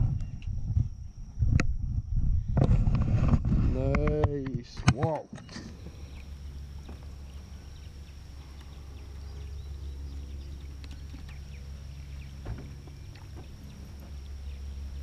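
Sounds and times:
trolling motor humming: 0:04.9 - 0:15.0.

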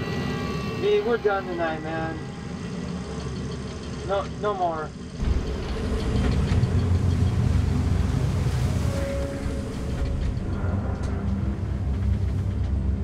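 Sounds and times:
heavy sea: 0:00.0 - 0:13.0
storm wind: 0:04.9 - 0:13.0.

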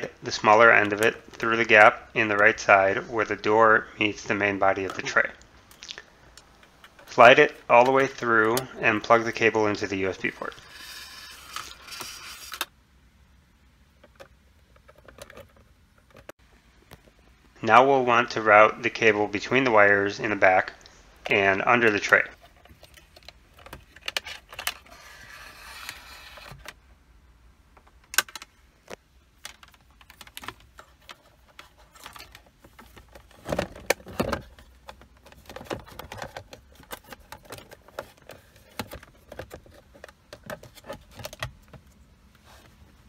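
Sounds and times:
scraping: 0:21.9 - 0:26.8.

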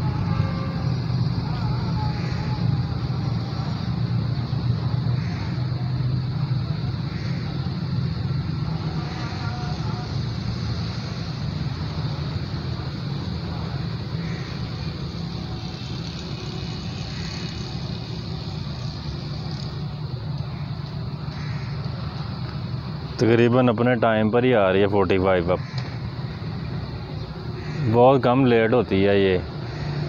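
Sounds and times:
engine rumble: 0:00.0 - 0:30.0
hiss: 0:08.6 - 0:12.9.

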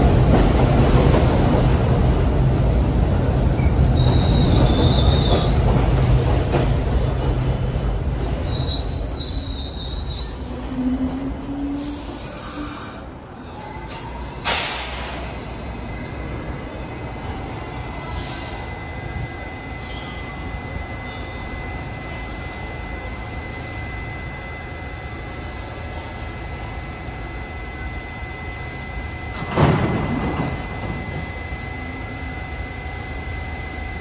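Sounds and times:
high whine from standing train: 0:00.0 - 0:34.0
train rumble: 0:00.0 - 0:34.0
train wheel squeal: 0:03.6 - 0:05.8, 0:08.0 - 0:14.4, 0:18.0 - 0:25.1
train brake hiss: 0:08.3 - 0:13.2, 0:18.1 - 0:18.7, 0:23.4 - 0:23.9.

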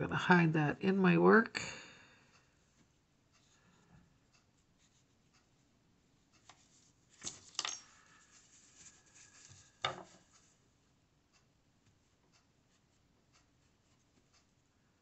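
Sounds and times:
small objects clicking on tabletop: 0:07.2 - 0:07.9.

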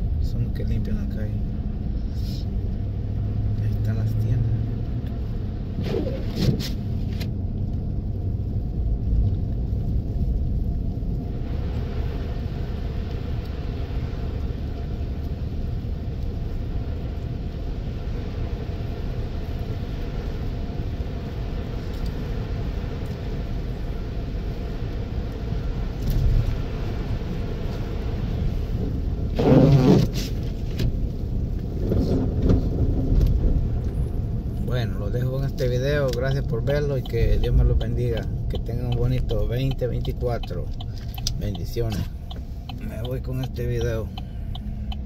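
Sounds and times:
car engine and tyre rumble: 0:00.0 - 0:45.0.

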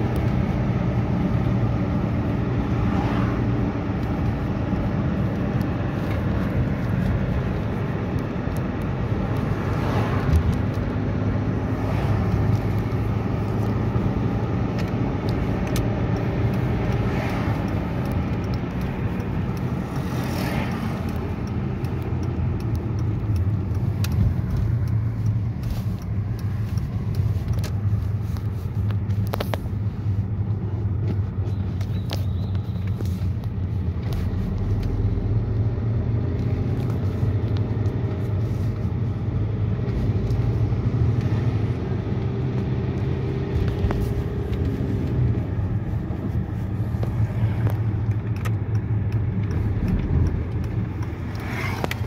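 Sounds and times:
car engine hum: 0:00.0 - 0:52.0
road noise: 0:00.0 - 0:52.0.

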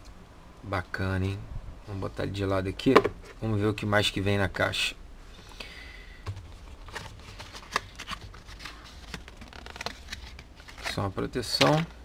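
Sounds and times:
cardboard and paper rustling: 0:06.2 - 0:12.0.

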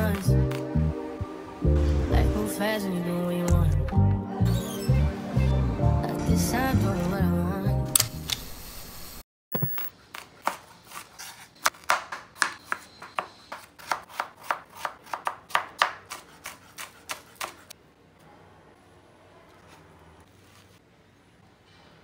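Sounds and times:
knife chopping on wooden board: 0:10.4 - 0:17.6.

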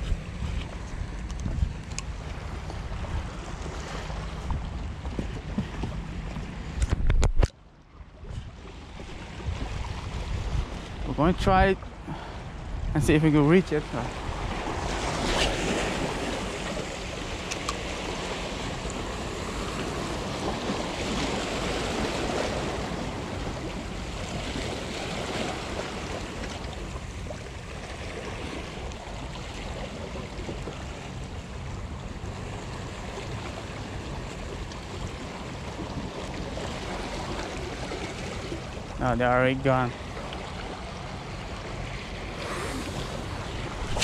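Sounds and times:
waves washing over rocks: 0:42.3 - 0:44.0.

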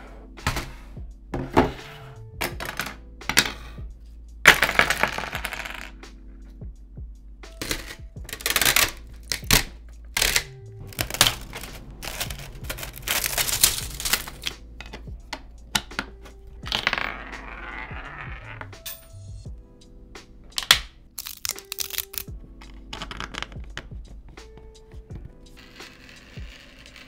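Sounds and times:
plastic parts knocking on wood: 0:02.4 - 0:03.6, 0:07.6 - 0:18.7, 0:22.6 - 0:24.0
protective film peeling rustle: 0:10.2 - 0:14.5, 0:20.6 - 0:22.3.

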